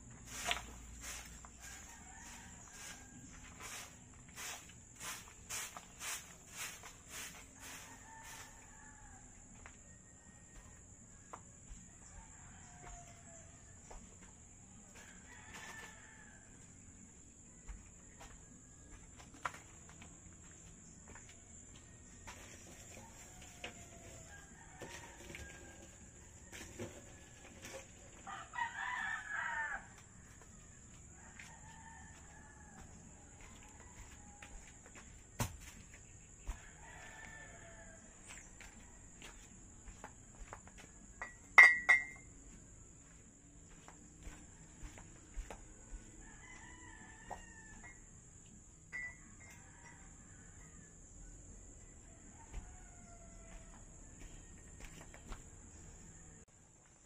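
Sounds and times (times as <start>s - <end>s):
rooster crowing: 0.3s - 5.6s, 6.6s - 10.9s, 11.7s - 14.0s, 14.9s - 16.7s, 22.2s - 40.6s, 43.7s - 48.2s, 49.0s - 56.4s.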